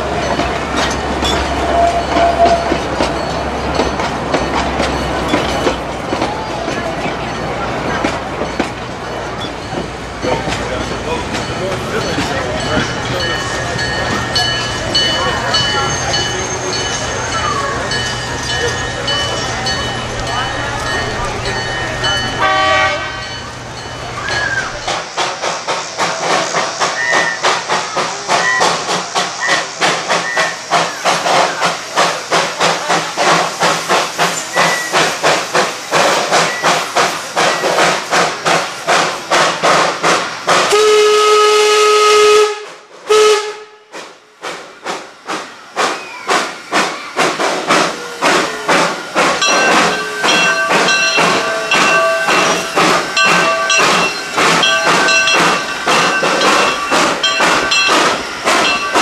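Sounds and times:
steam locomotive chuffing: 0.0s - 59.0s
steam whistle: 22.4s - 23.2s, 40.7s - 43.8s.

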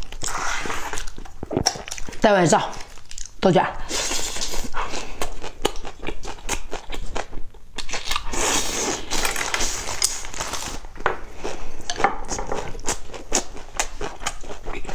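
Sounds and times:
person chewing food: 0.0s - 14.9s.

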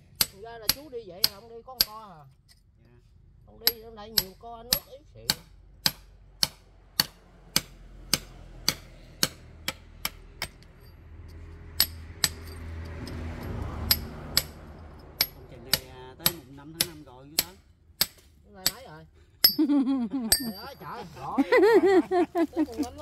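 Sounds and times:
hammer striking steel chisel: 0.2s - 2.6s, 3.6s - 18.8s, 19.4s - 19.6s, 20.3s - 20.8s.

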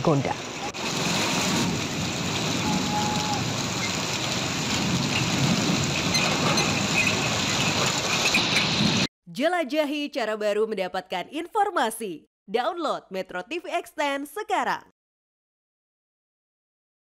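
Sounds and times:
heavy rain on a street: 0.0s - 9.1s.

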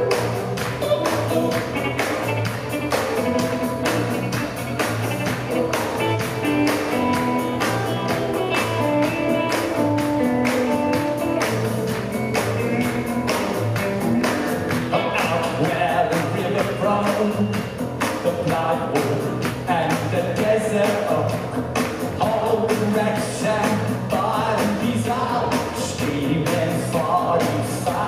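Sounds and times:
male lead vocal: 0.0s - 2.1s, 14.7s - 28.0s
drum beats: 0.0s - 28.0s
electric guitar: 0.0s - 28.0s
live rock band playing: 0.0s - 28.0s.

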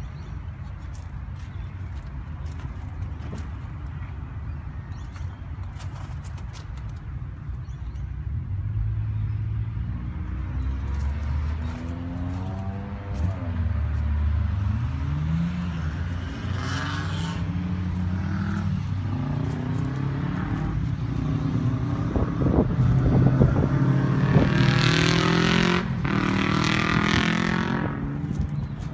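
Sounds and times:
vehicle engine passing by: 8.6s - 28.9s.

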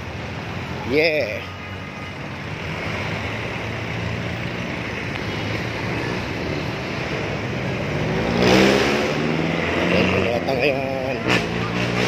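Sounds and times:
street traffic engines running: 0.0s - 12.0s
engine revving close by: 5.8s - 12.0s.

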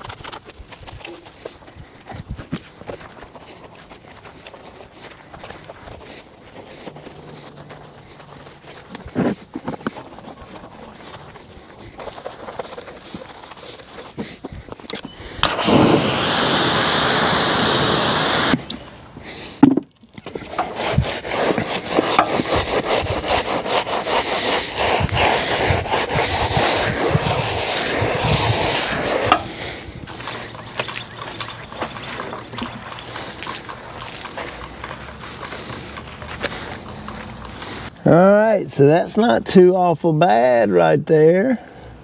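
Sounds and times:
stiff brush scrubbing tyre: 0.0s - 39.1s
hose spray nozzle hissing: 14.9s - 19.5s, 20.4s - 37.9s.

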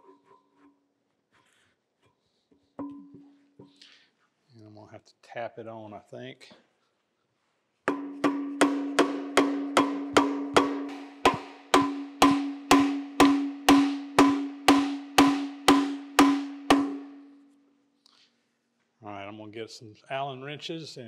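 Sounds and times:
metallic ringing tone: 2.8s - 3.4s
mallet knocking on pulley: 7.9s - 17.2s.

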